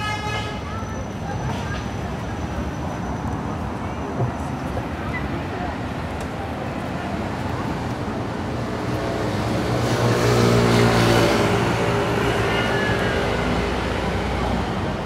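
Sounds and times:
city street traffic: 0.0s - 15.0s.

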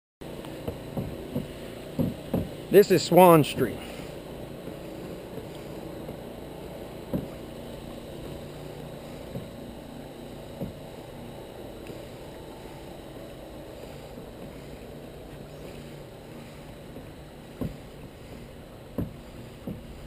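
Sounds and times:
kayak rushing through water: 0.2s - 20.0s
soft knocks: 0.6s - 2.6s, 7.1s - 7.4s, 17.5s - 17.9s.

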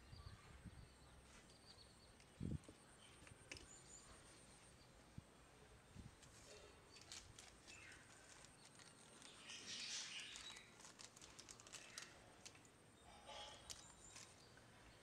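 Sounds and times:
light clicks of small parts: 1.5s - 3.8s, 6.2s - 12.8s, 13.5s - 14.7s
plastic bag crinkling: 6.2s - 12.7s, 13.5s - 14.4s.

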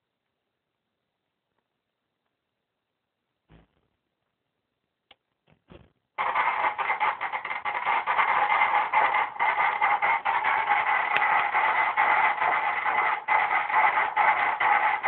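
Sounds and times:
whooshing fetal heartbeat pulse: 6.2s - 15.0s.

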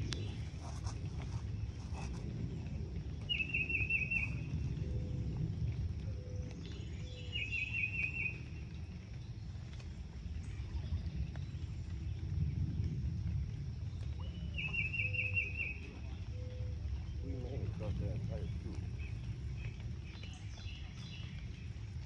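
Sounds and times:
steady low rumble: 0.0s - 22.0s.

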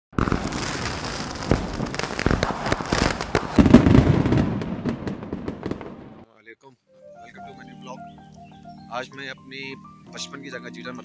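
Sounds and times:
crackling with sharp pops: 0.1s - 6.3s.

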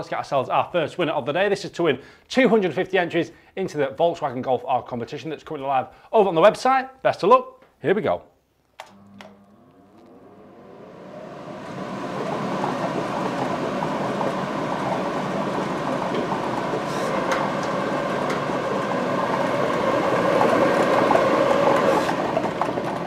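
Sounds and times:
air rushing through chambers: 9.9s - 22.6s.

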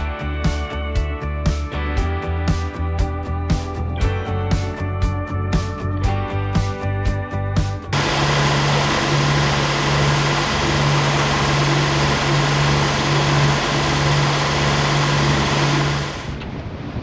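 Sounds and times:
marine engine drone: 7.9s - 17.0s
wind: 8.4s - 17.0s.

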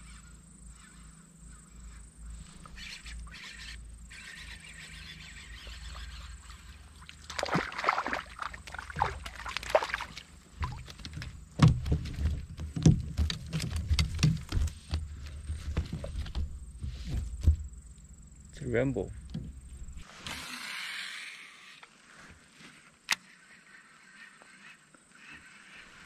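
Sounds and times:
fish splashing at surface: 7.1s - 11.2s
knocks on plastic kayak: 10.6s - 17.7s.

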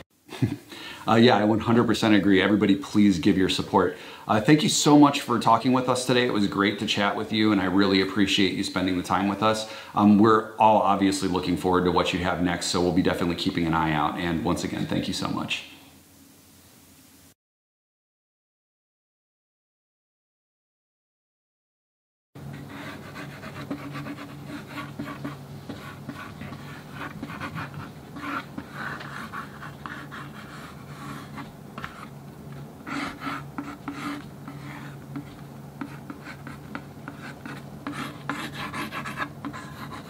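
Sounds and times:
pencil scratching on board: 22.5s - 40.0s.

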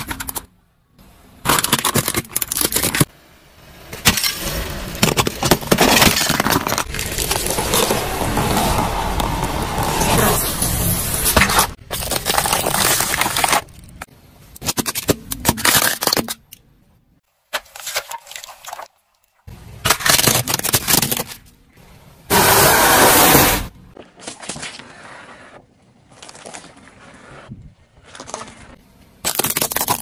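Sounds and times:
car tyre crushing objects: 3.8s - 16.5s, 19.7s - 21.7s, 28.0s - 30.0s.

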